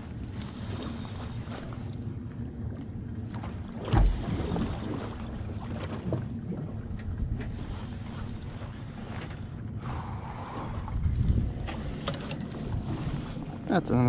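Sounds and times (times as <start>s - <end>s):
low rumble of drifting boat: 0.0s - 14.0s
wind on microphone: 3.8s - 14.0s.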